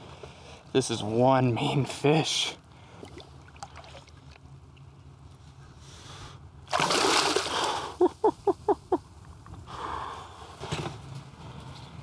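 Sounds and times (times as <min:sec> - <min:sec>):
fish splashing at the surface: 0:06.7 - 0:07.9.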